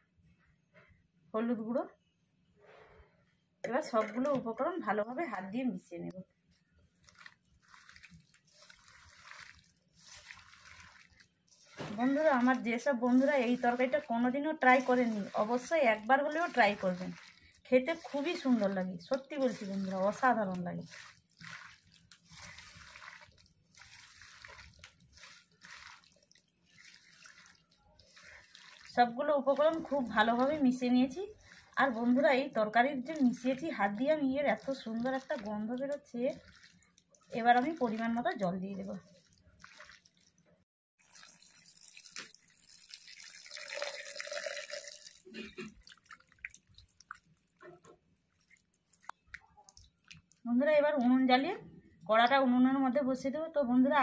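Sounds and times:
wet squelching of hand mixing: 0:06.4 - 0:51.4
water pouring into metal pan: 0:07.0 - 0:40.4, 0:41.0 - 0:50.4.

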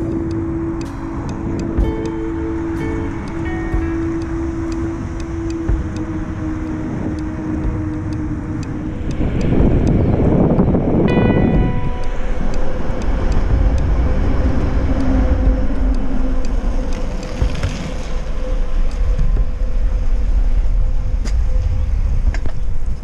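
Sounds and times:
wind buffeting microphone: 0:00.0 - 0:23.0
bicycle tyre noise: 0:13.3 - 0:23.0.

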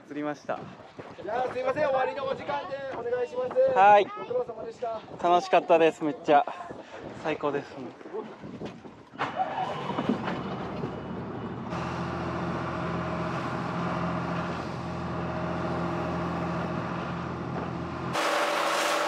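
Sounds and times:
boat engine droning: 0:09.2 - 0:19.0.

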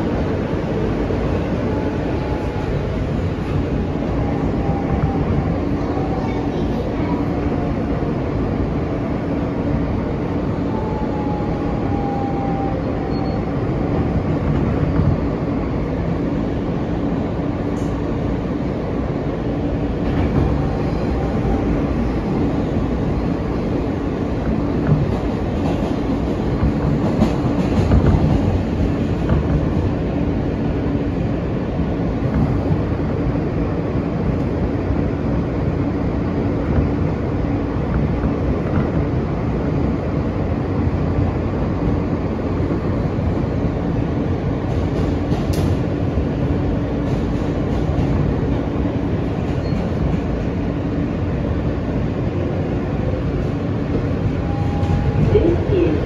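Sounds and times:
subway train rail noise: 0:00.0 - 0:56.0.

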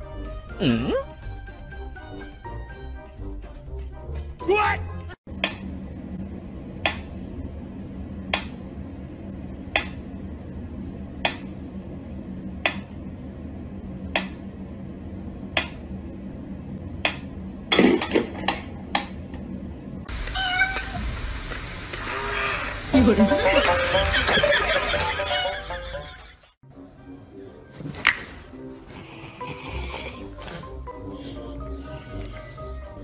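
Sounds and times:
cat meowing: 0:20.2 - 0:21.0.

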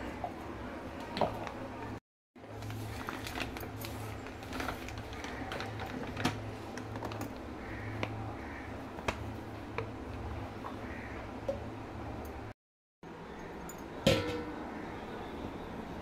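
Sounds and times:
plastic pouch crinkling: 0:02.6 - 0:07.4.

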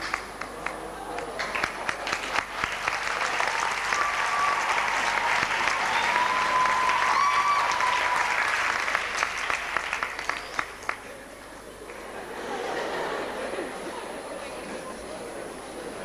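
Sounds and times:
audience applauding: 0:00.0 - 0:12.6.

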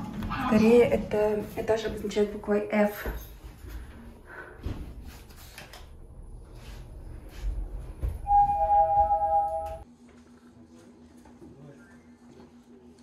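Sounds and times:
elevator rumble: 0:05.9 - 0:09.8
two-note elevator chime: 0:08.3 - 0:09.8.

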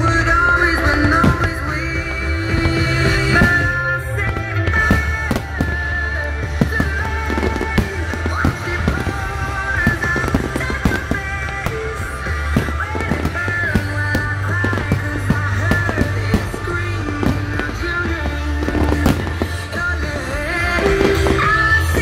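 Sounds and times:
loud music with steady bass: 0:00.0 - 0:22.0.

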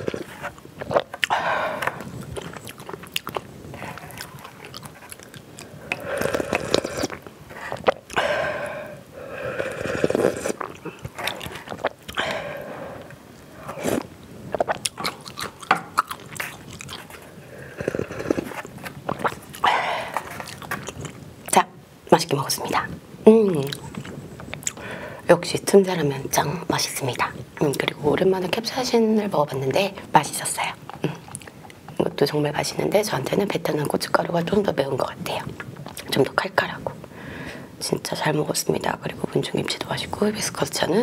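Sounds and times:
swallowing and chewing: 0:00.0 - 0:21.6, 0:23.6 - 0:25.0, 0:30.9 - 0:32.0
broth slurping: 0:03.7 - 0:15.0.

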